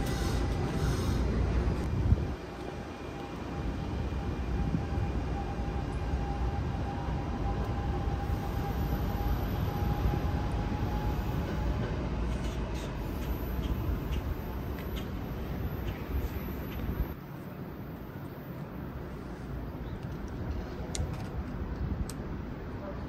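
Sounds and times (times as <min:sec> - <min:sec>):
train rumbling past: 0:00.0 - 0:23.0.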